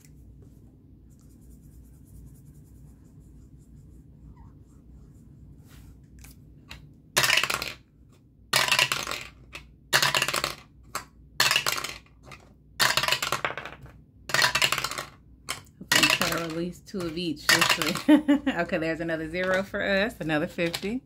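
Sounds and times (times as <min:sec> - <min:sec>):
die clattering through dice tower: 0:07.2 - 0:07.8, 0:08.5 - 0:18.2.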